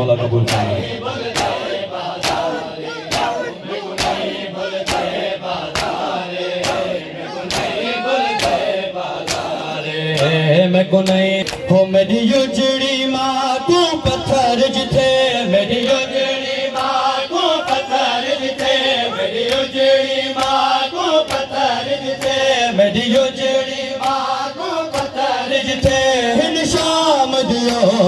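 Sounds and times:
men chanting in unison: 0.0 - 28.0.

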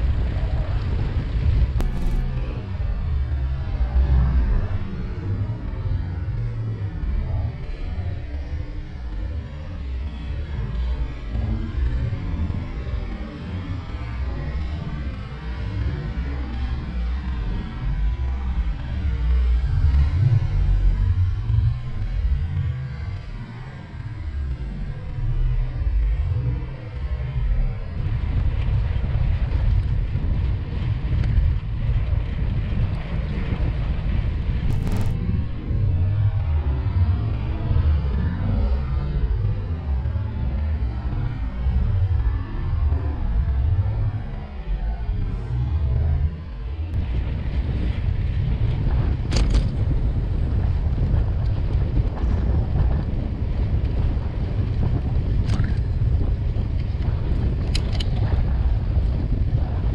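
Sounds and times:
wind buffeting microphone: 0.0 - 59.9
sharp clicks: 1.8 - 2.5, 34.7 - 35.6.

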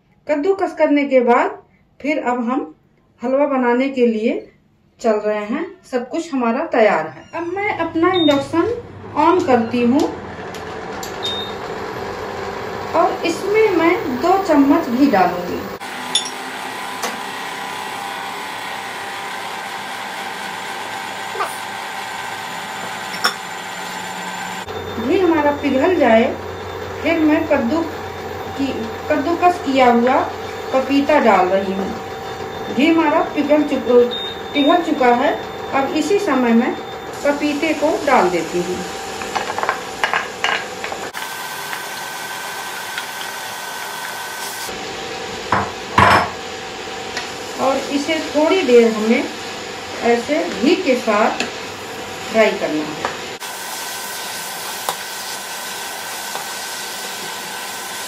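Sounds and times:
cooktop cooling fan whirring: 5.1 - 58.0
food frying hiss: 40.8 - 44.7, 53.4 - 58.0.

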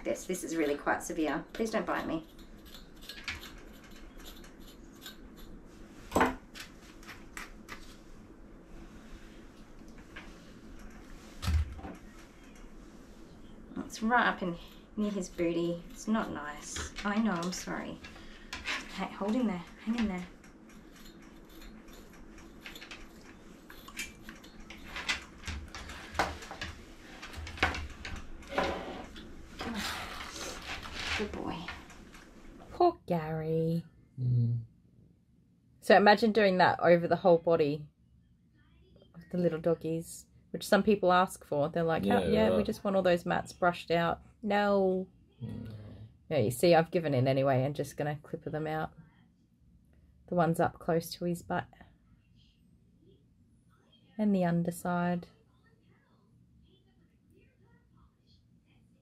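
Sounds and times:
faint low hum: 0.0 - 59.0
brush scratching through fur: 0.4 - 6.1, 12.2 - 18.0, 18.8 - 25.0, 29.8 - 31.4.

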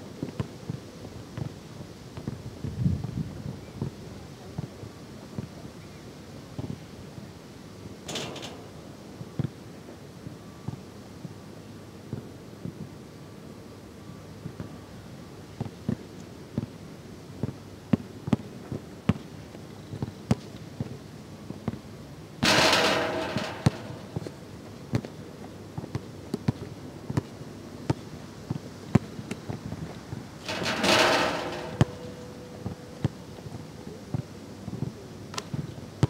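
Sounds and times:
basketball bouncing: 22.4 - 24.3, 30.5 - 32.0
ball striking metal backboard: 22.4 - 24.4, 30.5 - 32.2.

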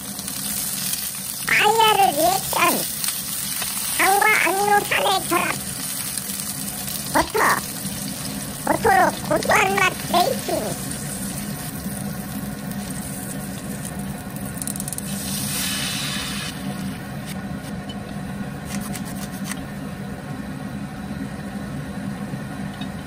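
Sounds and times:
food sizzling in a frying pan: 0.0 - 17.4.

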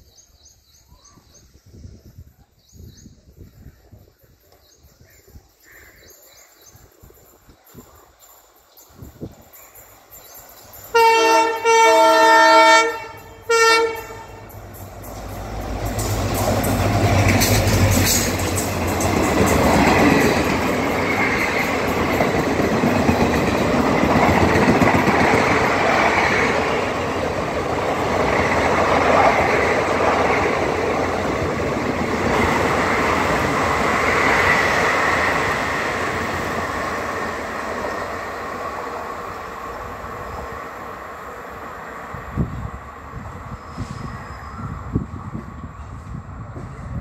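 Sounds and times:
train wheels rumbling and clattering: 14.0 - 40.8, 42.1 - 47.0.

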